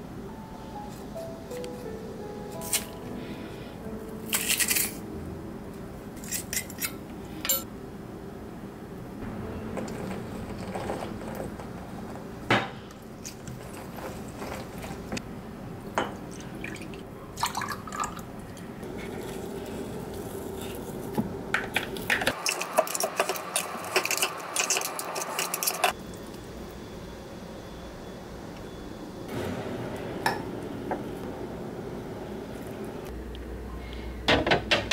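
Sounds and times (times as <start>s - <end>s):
utensils clinking on glass and dishes: 4.3s - 5.0s, 6.2s - 7.7s, 9.6s - 15.2s, 22.1s - 26.0s
utensils scraping: 4.3s - 5.0s, 6.2s - 7.7s, 22.1s - 26.0s.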